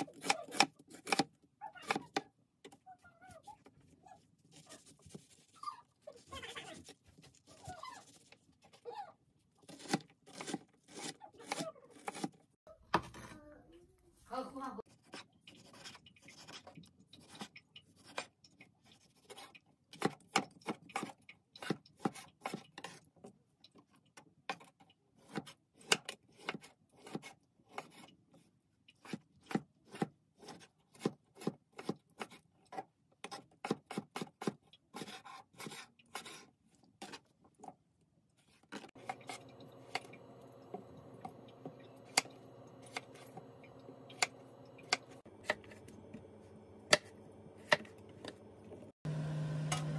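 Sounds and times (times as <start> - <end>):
knife chopping on cutting board: 0.0 - 1.3, 41.6 - 43.4, 44.1 - 45.9, 46.9 - 48.4.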